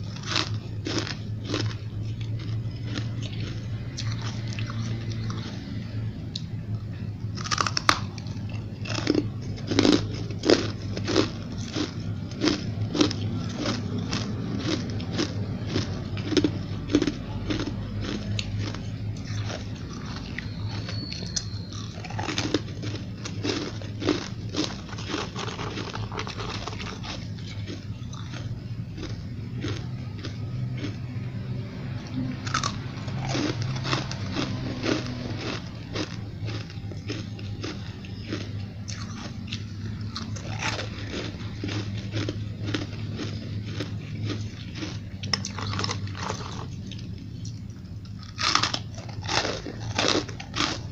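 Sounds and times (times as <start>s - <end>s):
ice crunching being chewed: 0.0s - 50.9s
low steady hum: 0.0s - 50.9s.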